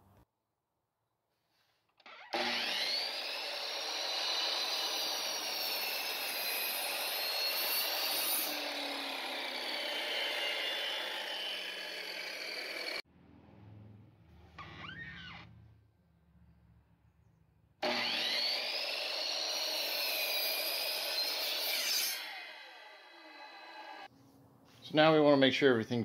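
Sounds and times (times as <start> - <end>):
miter saw cutting wood: 2.1 - 13.0, 17.8 - 24.1.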